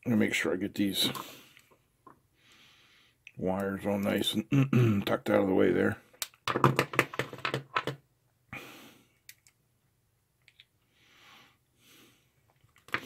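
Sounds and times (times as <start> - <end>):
light clicks and taps of small parts: 9.2 - 9.6, 10.4 - 10.7.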